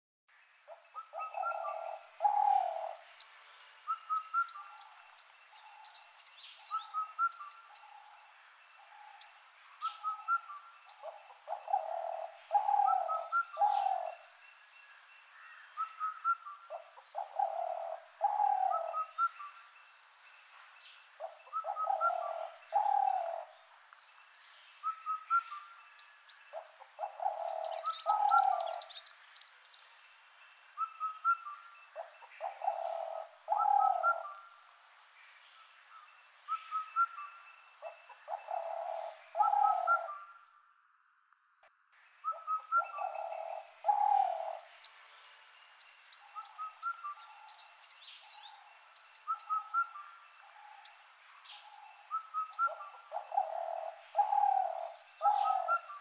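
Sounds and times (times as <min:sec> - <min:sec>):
birds chirping and trilling: 0:00.3 - 0:41.3, 0:42.0 - 0:56.0
bird hooting call: 0:00.7 - 0:03.0, 0:03.9 - 0:05.0, 0:08.8 - 0:14.3, 0:15.7 - 0:19.6, 0:21.2 - 0:23.6, 0:24.8 - 0:25.8, 0:26.5 - 0:29.0, 0:30.8 - 0:34.6, 0:36.5 - 0:40.5, 0:42.2 - 0:45.0, 0:46.2 - 0:47.8, 0:49.1 - 0:51.0, 0:51.6 - 0:56.0.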